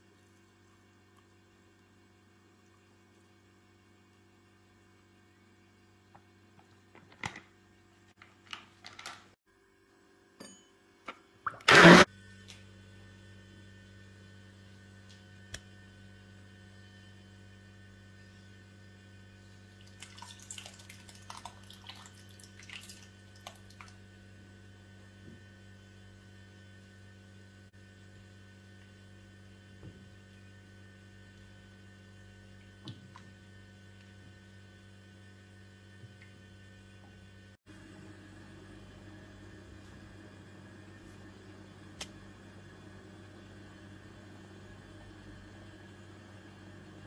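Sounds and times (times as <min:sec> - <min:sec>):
faint electrical hum: 0:00.0 - 0:47.0
liquid splashing and crackling: 0:19.8 - 0:24.0.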